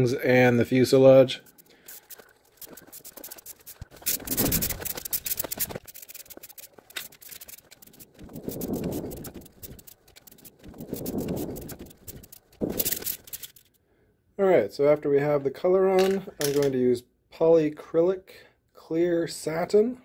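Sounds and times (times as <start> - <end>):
spray can ball rattling: 0.9 - 13.8
spray paint hissing: 1.4 - 13.6.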